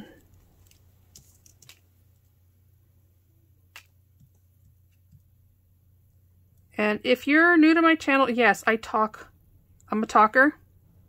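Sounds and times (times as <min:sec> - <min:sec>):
low steady hum: 0:00.0 - 0:11.0
faint clicks and taps: 0:00.2 - 0:02.3, 0:03.7 - 0:05.4.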